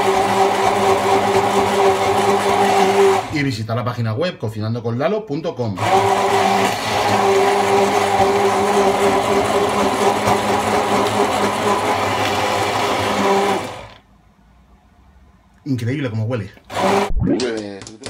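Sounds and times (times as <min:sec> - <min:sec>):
immersion blender running: 0:00.0 - 0:03.4, 0:05.8 - 0:14.0, 0:16.7 - 0:17.2.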